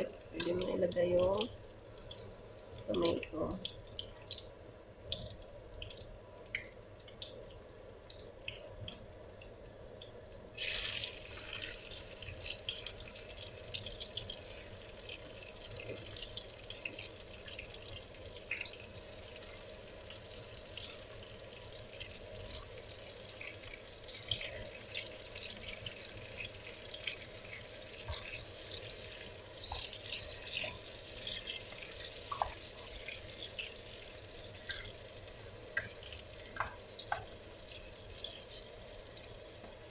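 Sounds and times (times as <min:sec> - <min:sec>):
garlic and onion sizzling in oil: 0:00.0 - 0:39.9
oil crackling and popping: 0:00.3 - 0:39.9
tomato hissing in hot oil: 0:10.5 - 0:39.9.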